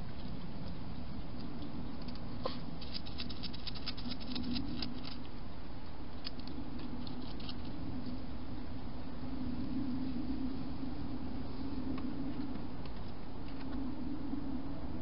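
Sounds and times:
low background hum: 0.0s - 15.0s
hedgehog chewing food: 2.0s - 5.3s.

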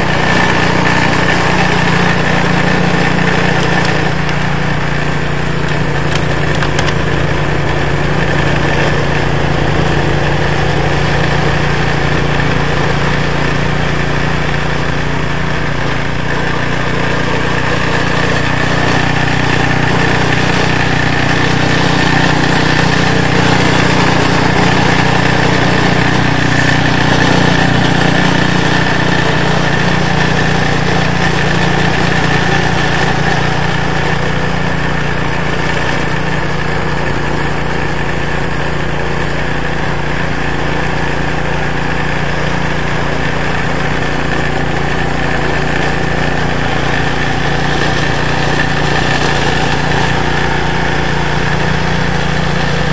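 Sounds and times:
snowblower engine running: 0.0s - 52.9s.

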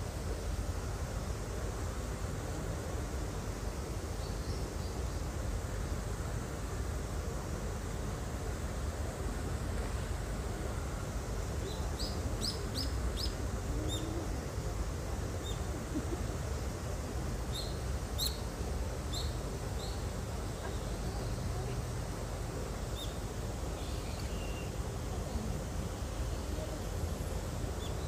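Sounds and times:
small birds chirping: 17.5s - 18.5s, 19.1s - 21.7s, 22.8s - 24.8s.

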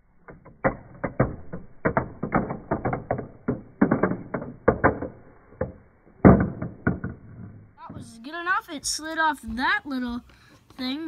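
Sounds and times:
marble clicking through plastic pieces: 0.0s - 7.8s.

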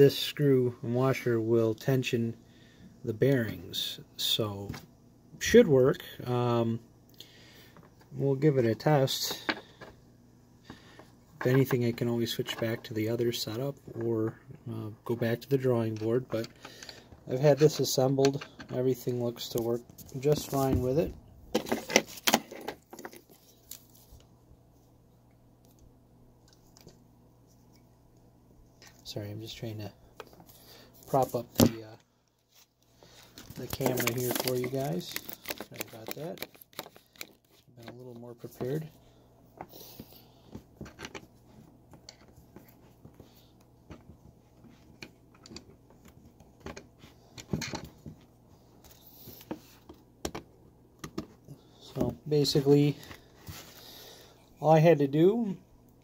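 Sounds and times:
faint low steady hum: 0.0s - 56.0s
handling noises: 10.6s - 24.3s, 28.7s - 54.1s.

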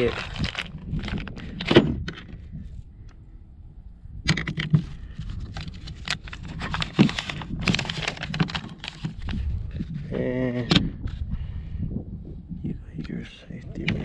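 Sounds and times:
packaging clicks and crinkling rustles: 0.0s - 2.4s, 4.4s - 10.0s.

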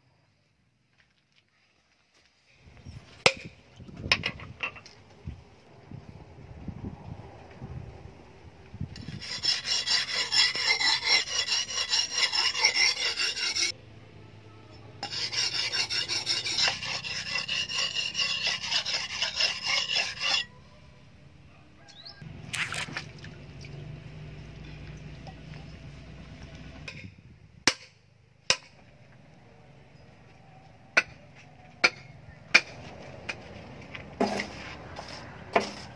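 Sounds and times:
blade scraping on sharpening stone: 9.0s - 13.7s, 15.0s - 20.5s.

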